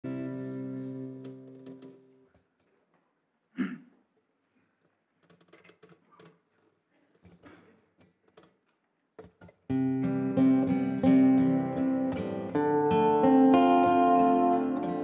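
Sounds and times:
faint taps and rustles: 4.8 - 9.6
acoustic guitar strummed: 9.7 - 15.0.

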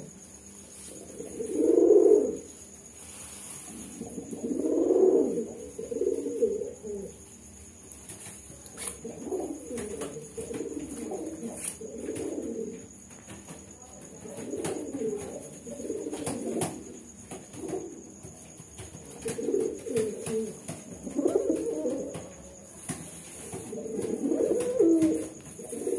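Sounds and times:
pigeons cooing: 1.0 - 2.5, 3.8 - 7.2, 8.8 - 13.1, 14.2 - 22.4, 23.5 - 25.9.

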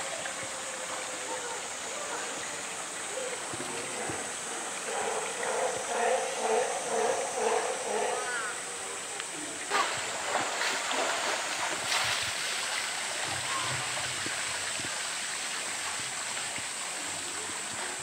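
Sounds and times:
water flowing: 0.0 - 18.0
water splash: 9.2 - 17.0.

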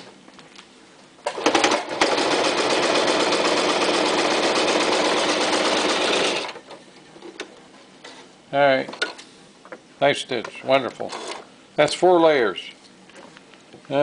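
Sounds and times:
sewing machine stitching: 1.3 - 6.6, 11.1 - 11.4.

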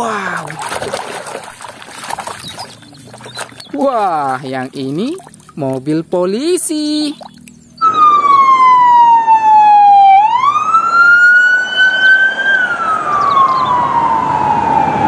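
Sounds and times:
police siren wailing: 7.8 - 15.0.

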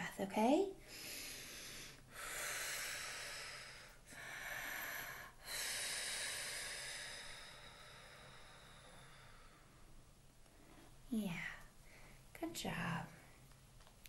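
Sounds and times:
woman breathing deeply: 0.8 - 11.0.

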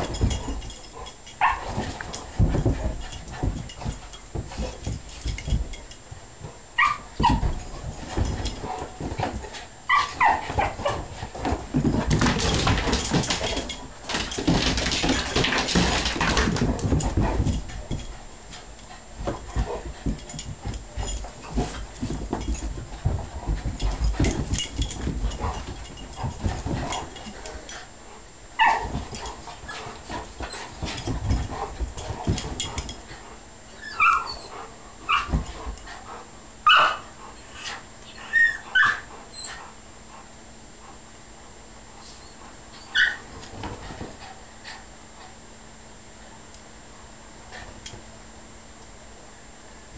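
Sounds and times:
dogs scuffling and thumping: 0.0 - 45.8, 47.4 - 48.2
dog yips and whimpers: 33.8 - 34.5, 36.7 - 37.1, 38.1 - 39.5, 42.8 - 43.3.

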